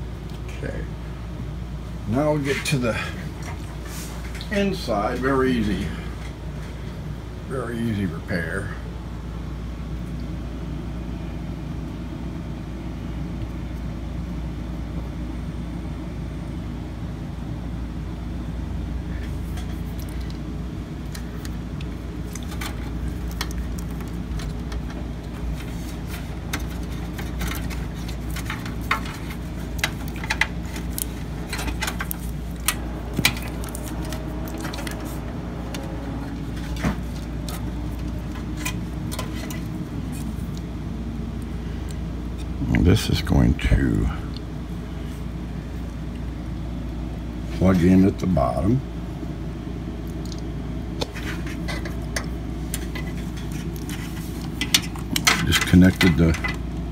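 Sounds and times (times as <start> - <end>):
steady low hum: 0.0 - 56.9
cables and connectors clicking: 21.0 - 40.7.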